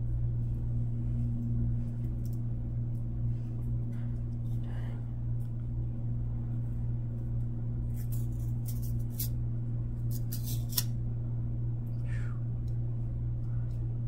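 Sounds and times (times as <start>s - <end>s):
steady low hum: 0.0s - 14.0s
cards scraping and rustling: 7.9s - 9.4s, 10.1s - 10.9s.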